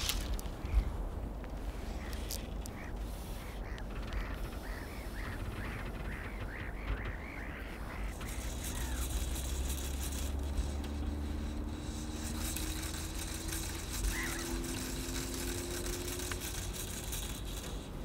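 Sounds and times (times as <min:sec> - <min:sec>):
low engine hum: 0:00.0 - 0:18.0
faint crow caw: 0:01.8 - 0:09.1, 0:14.1 - 0:14.7.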